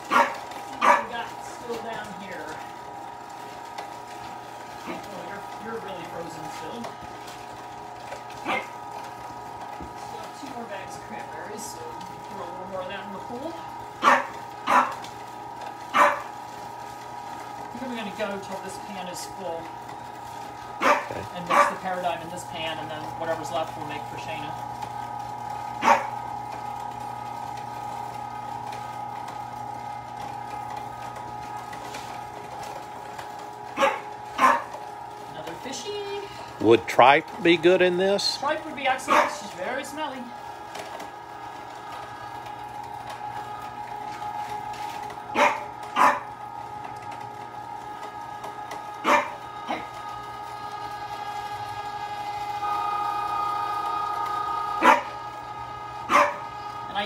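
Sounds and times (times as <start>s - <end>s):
electric meat grinder humming: 0.0s - 57.0s
dog barking: 0.1s - 1.1s, 14.0s - 15.0s, 15.9s - 16.3s, 20.8s - 21.8s, 25.8s - 26.2s, 33.8s - 34.7s, 39.1s - 39.4s, 45.4s - 46.3s, 49.0s - 49.4s, 54.8s - 55.1s, 56.1s - 56.4s.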